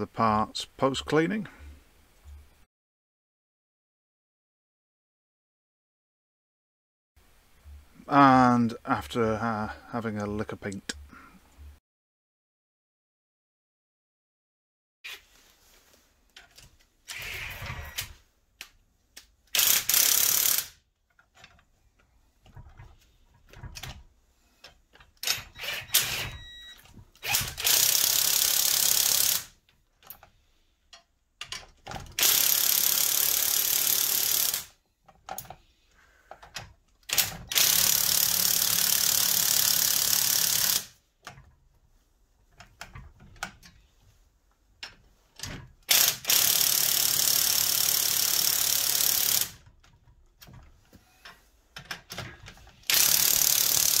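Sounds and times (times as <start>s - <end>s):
power wrench running: 19.6s - 20.8s, 25.2s - 26.6s, 27.2s - 29.5s, 32.1s - 34.7s, 37.1s - 41.0s, 45.9s - 49.6s, 52.8s - 54.0s.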